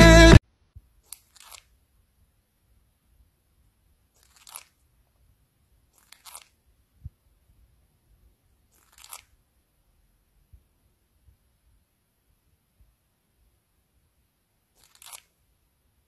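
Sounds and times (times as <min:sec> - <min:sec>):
parakeet grinding its beak: 0:01.1 - 0:01.7, 0:04.2 - 0:04.8, 0:05.9 - 0:06.6, 0:08.7 - 0:09.3, 0:14.8 - 0:15.3.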